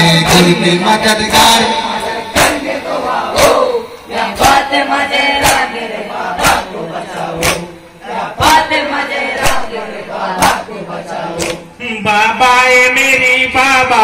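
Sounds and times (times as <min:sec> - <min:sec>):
crowd shouting and chanting: 0:00.0 - 0:14.0
people slapping chests in unison: 0:02.2 - 0:11.8.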